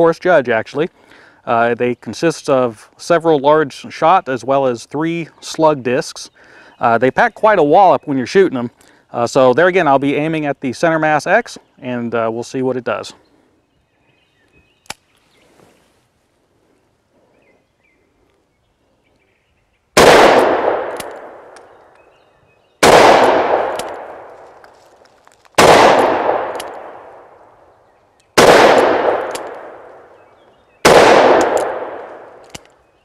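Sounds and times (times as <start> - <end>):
revolver shots with echo: 22.8 - 24.4, 28.4 - 30.1, 30.9 - 32.6.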